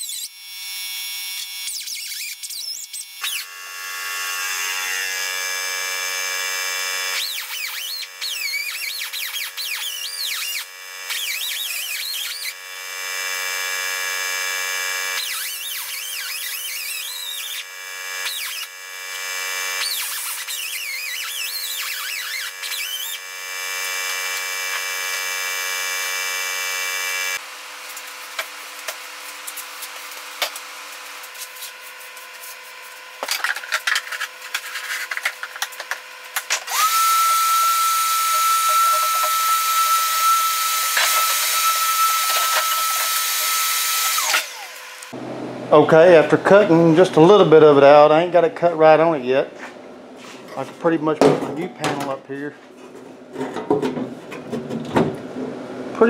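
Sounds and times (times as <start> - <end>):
cut-off wheel cutting steel: 1.4 - 45.7.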